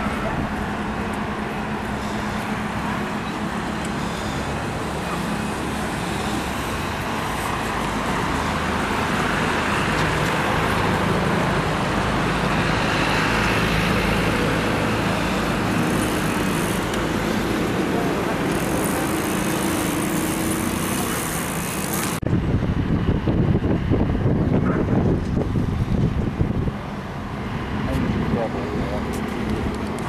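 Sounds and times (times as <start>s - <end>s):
road traffic passing: 0.0s - 30.0s.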